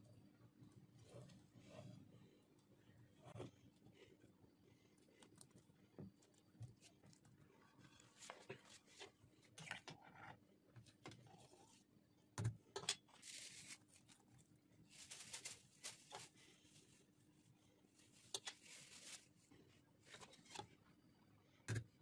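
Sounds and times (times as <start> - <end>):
rustling: 13.2 - 17.0, 18.0 - 19.5.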